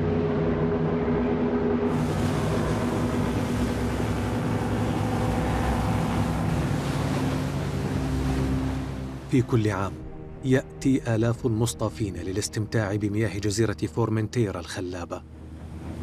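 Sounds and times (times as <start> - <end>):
ship engine droning: 0.0 - 16.0
rushing water: 1.9 - 10.0
wind: 14.6 - 16.0.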